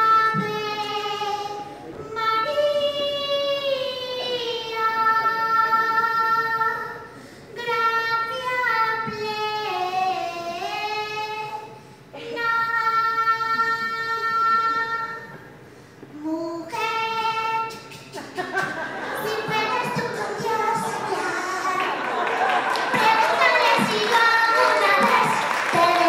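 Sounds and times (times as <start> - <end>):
woman singing: 22.8 - 26.0.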